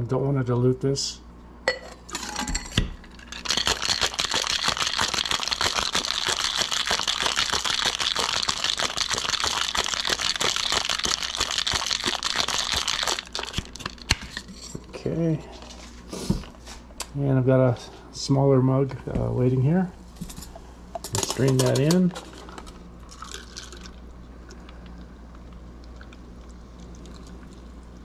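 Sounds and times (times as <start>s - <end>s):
shaker clanks: 2.2s - 14.1s
ice rattling in cocktail shaker: 3.0s - 14.1s, 21.2s - 24.0s
pouring liquid: 3.2s - 14.0s, 23.0s - 28.0s.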